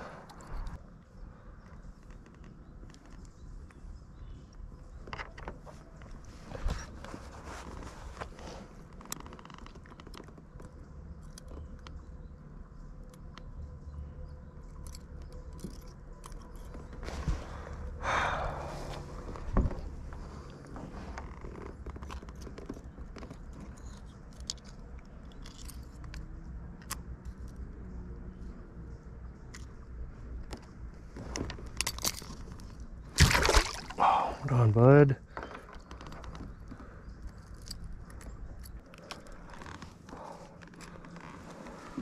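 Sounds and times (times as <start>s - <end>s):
handling clicks and scrapes: 5.0s - 11.8s, 19.2s - 27.6s, 35.3s - 42.0s.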